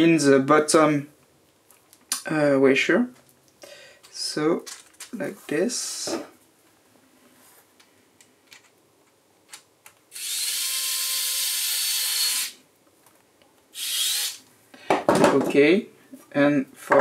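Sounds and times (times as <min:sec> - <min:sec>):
electric screwdriver running: 0:10.2 - 0:12.6, 0:13.8 - 0:14.4.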